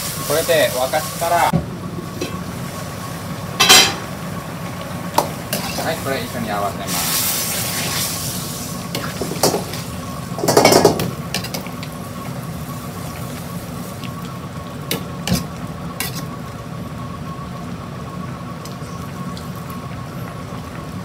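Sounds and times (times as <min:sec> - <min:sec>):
steady sizzle: 0:00.0 - 0:21.0
metal ladle scraping a wok: 0:15.3 - 0:16.3.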